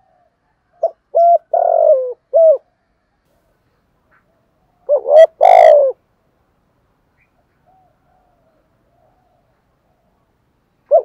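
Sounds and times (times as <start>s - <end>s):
dove cooing: 0.0s - 2.8s, 4.1s - 6.0s, 7.3s - 11.0s.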